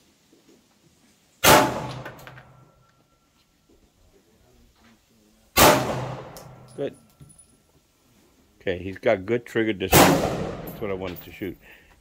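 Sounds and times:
pistol shots: 1.4s - 2.4s, 5.6s - 6.6s, 9.9s - 10.8s.

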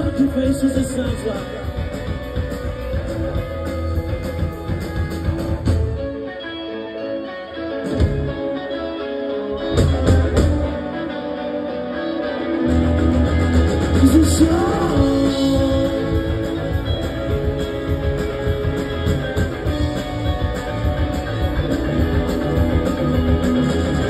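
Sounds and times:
live rock band: 0.0s - 24.0s
person singing: 13.9s - 17.1s.

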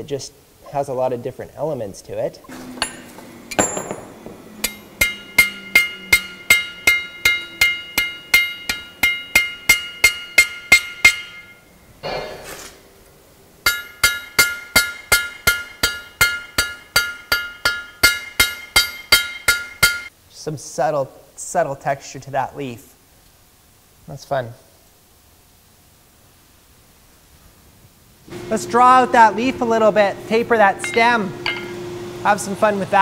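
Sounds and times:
hammer striking ringing anvil: 2.8s - 12.4s, 13.7s - 20.1s, 30.8s - 31.8s.

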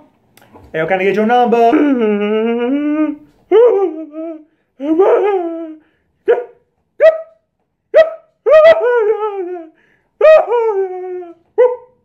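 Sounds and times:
man wailing in mock sobs: 1.6s - 5.8s, 8.4s - 11.5s.

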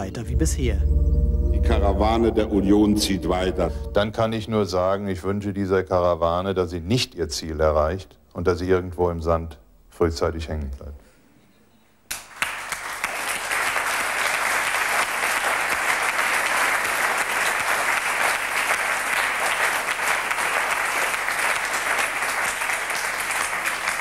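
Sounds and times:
audience applauding: 12.1s - 24.0s.

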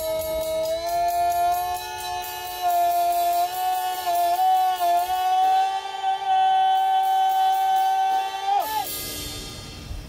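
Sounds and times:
two voices wailing: 0.2s - 8.9s.

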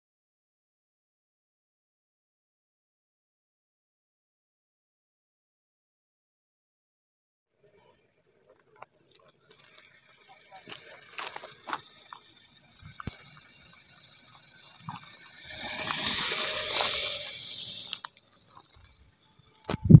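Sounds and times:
car driving past: 9.9s - 19.7s.

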